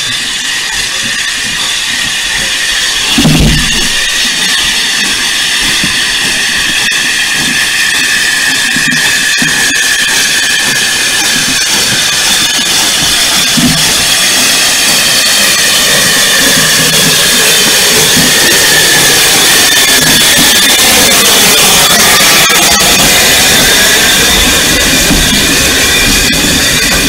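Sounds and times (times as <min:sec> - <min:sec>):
high-pitched squealing: 0:00.0 - 0:27.0
steam train rushing past: 0:00.0 - 0:27.0.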